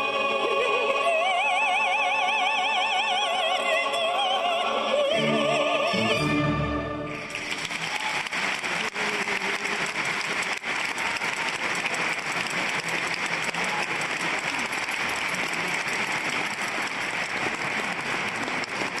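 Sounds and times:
audience applauding: 7.1s - 19.0s.

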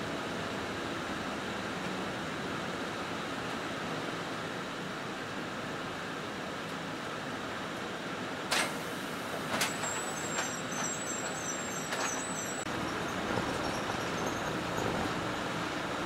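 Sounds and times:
bus engine and road noise: 0.0s - 16.0s.

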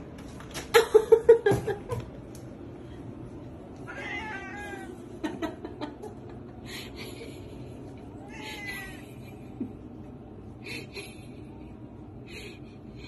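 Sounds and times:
cat meowing: 3.9s - 5.0s.

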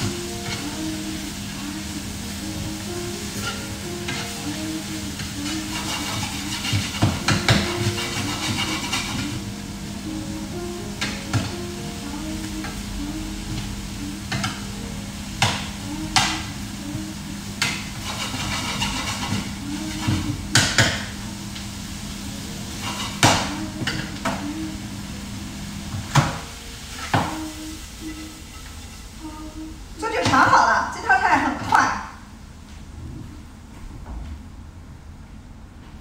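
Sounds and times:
food sizzling in a frying pan: 0.0s - 31.7s
low hum: 0.0s - 36.0s
spatula knocking a pan: 5.8s - 9.2s.

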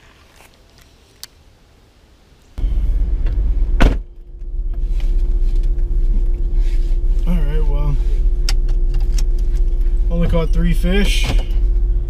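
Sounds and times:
engine idling inside cab: 2.6s - 12.0s
steady hum: 2.6s - 12.0s.

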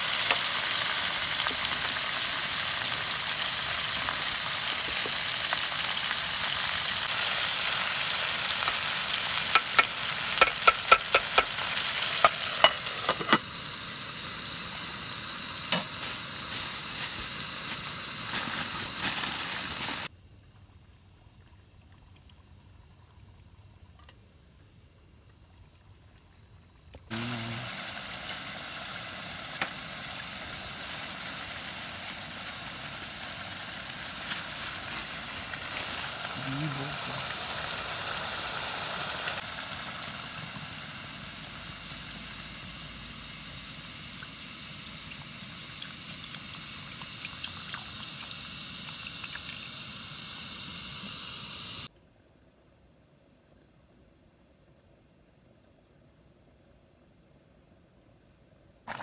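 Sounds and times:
chicken sizzling in a pot: 0.0s - 20.1s, 27.1s - 51.9s
metal spoon clicking against pot: 9.5s - 11.6s.

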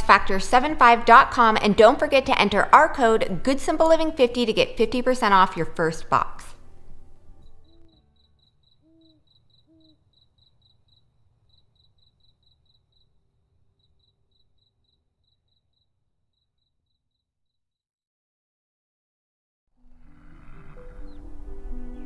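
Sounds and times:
cricket chirping: 7.3s - 17.3s
short low calls: 8.8s - 10.1s.

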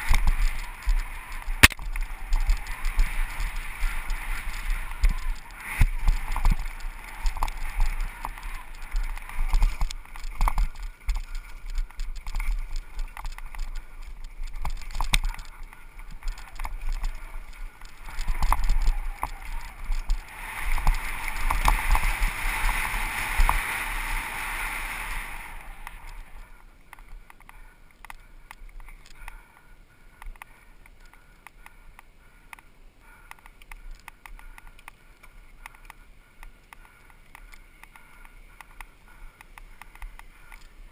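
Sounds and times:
bike chain and frame rattling: 0.0s - 29.5s.

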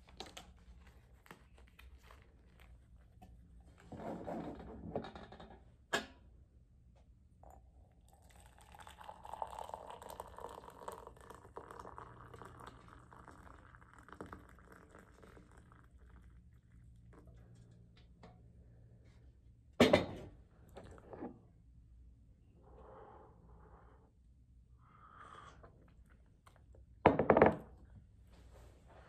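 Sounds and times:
liquid pouring into a mug: 7.4s - 17.6s.

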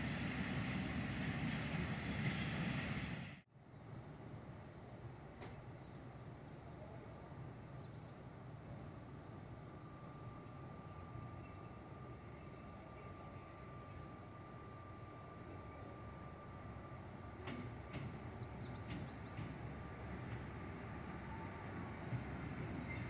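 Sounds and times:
locomotive engine rumble: 0.0s - 3.4s, 5.1s - 23.0s
birds chirping: 4.7s - 23.0s
thin steady whine: 8.9s - 18.2s.

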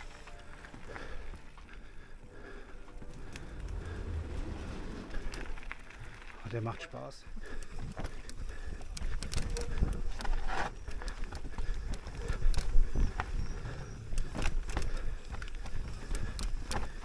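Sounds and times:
tyres on stones and roots: 0.0s - 17.0s
low rumble: 3.0s - 6.5s
bike chain and frame clattering: 3.6s - 17.0s.

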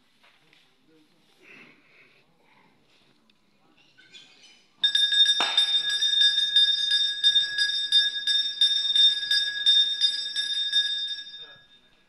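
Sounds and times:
temple bell strikes ringing: 4.8s - 11.9s.

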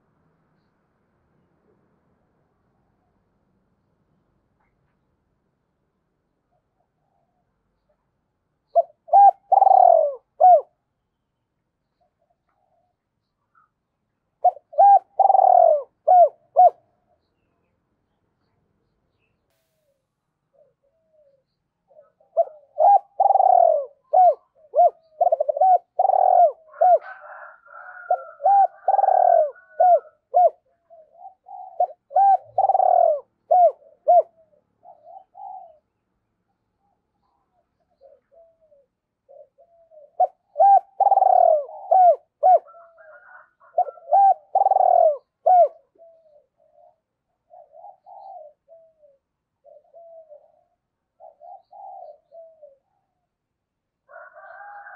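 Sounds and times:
dove cooing: 8.7s - 10.8s, 14.4s - 17.2s, 20.5s - 36.0s, 37.2s - 53.4s, 54.1s - 54.9s.

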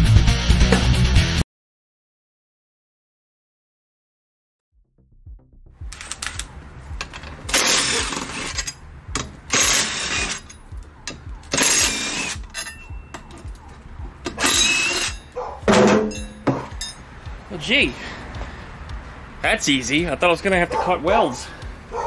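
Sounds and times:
small metal clinks: 10.2s - 15.4s, 16.1s - 17.0s.

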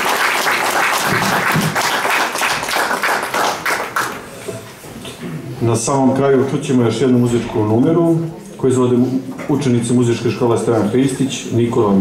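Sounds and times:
audience clapping: 0.0s - 4.4s.

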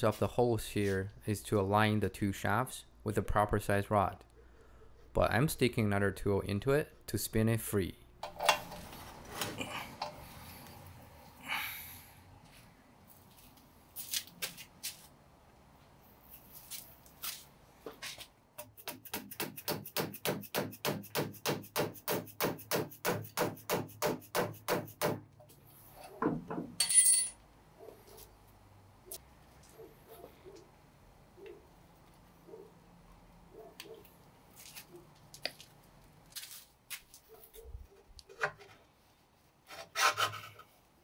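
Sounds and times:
ringing metal clink: 26.8s - 27.4s.

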